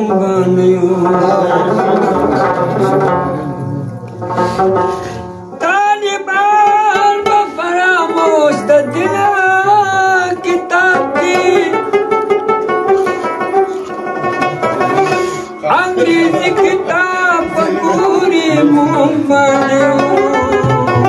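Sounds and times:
man singing: 0.0 - 4.4, 5.5 - 12.4, 14.3 - 21.0
plucked rabab: 0.0 - 21.0.

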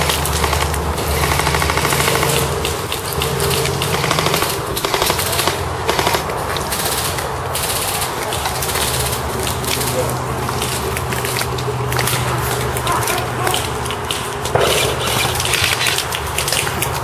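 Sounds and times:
airsoft guns firing bursts: 0.0 - 10.9.

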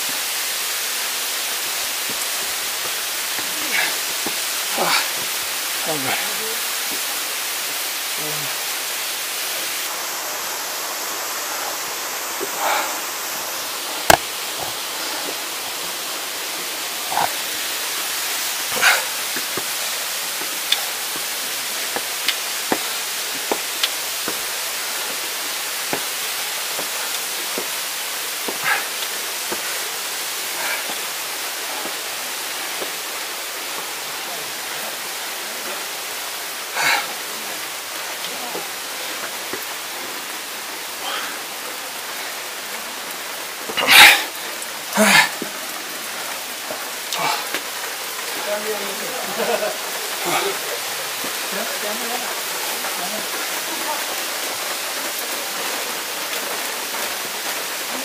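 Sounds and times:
running water rushing: 0.0 - 58.0.

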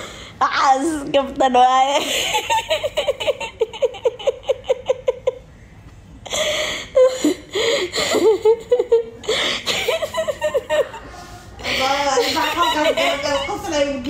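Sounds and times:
woman laughing: 2.0 - 5.5, 7.0 - 14.0.

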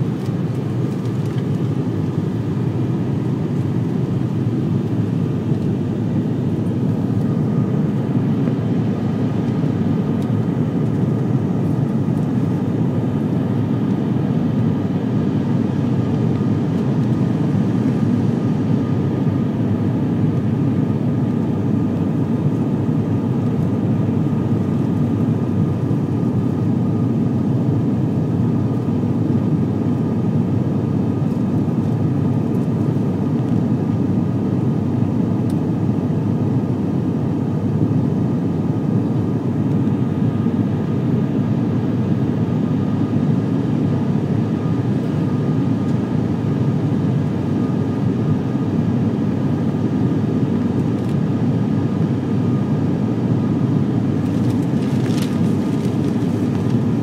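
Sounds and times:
turboprop engines droning in cabin: 0.0 - 57.0.

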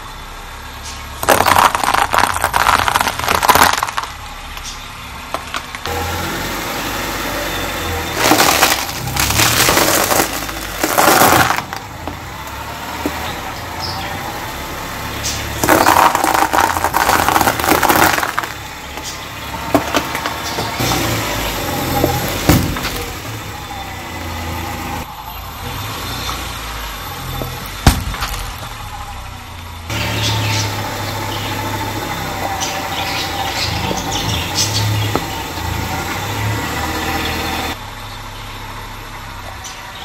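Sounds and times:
car engine running: 0.0 - 40.0
tyre crushing dry pasta: 1.2 - 4.2, 8.2 - 12.0, 15.6 - 18.6.

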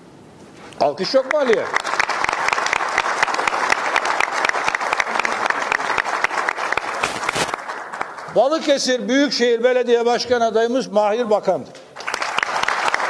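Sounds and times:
crowd applauding: 1.1 - 8.8, 12.0 - 13.0.

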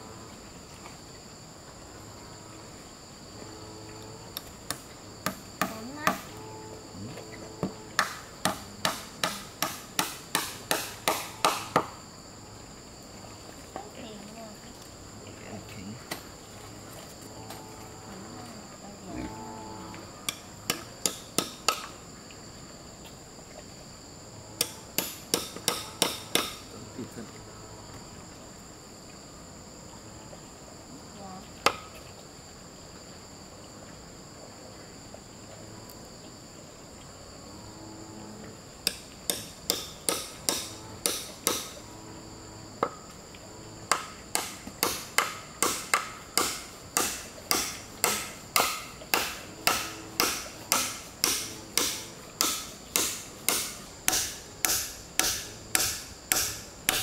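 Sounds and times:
high insect drone: 0.0 - 57.0
hammer striking nails into wood: 8.0 - 11.9, 20.3 - 21.9, 24.6 - 26.6, 38.9 - 41.8, 43.9 - 57.0.

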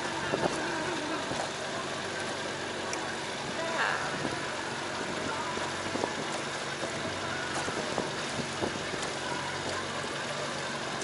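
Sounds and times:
boat engine humming: 0.0 - 11.0
wind noise: 0.2 - 1.4, 5.0 - 9.8.

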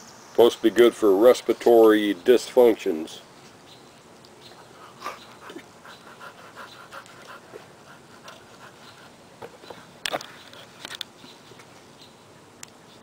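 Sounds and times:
quick panting breaths: 4.7 - 9.9.

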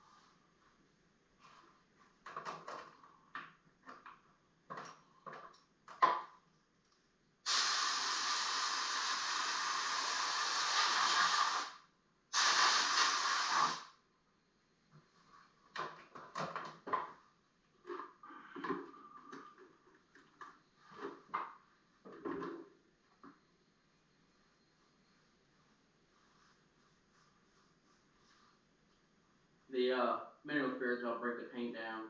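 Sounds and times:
compressed air blow gun hissing: 7.5 - 13.9.

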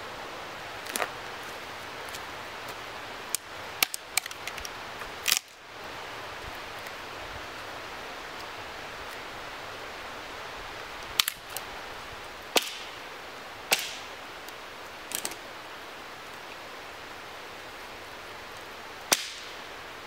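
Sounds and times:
dry branches snapping: 0.8 - 1.1, 2.1 - 5.6, 11.0 - 11.7, 12.5 - 12.9, 13.7 - 14.1, 15.1 - 15.4, 19.1 - 19.6.

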